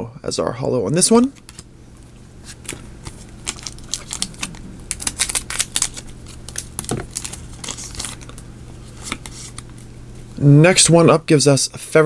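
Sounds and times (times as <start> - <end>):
foil wrapper crinkling and tearing: 2.5 - 9.7.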